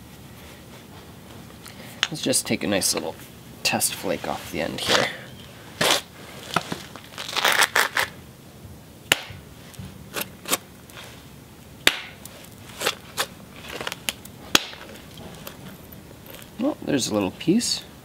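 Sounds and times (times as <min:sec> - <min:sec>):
hammer striking stone: 0:11.9 - 0:12.2.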